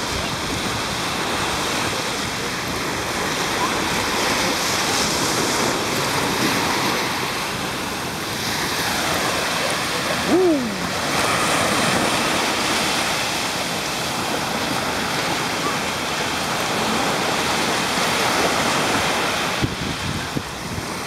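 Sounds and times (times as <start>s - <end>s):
waves washing up beach: 0.0s - 21.0s
person crying out: 10.3s - 11.0s.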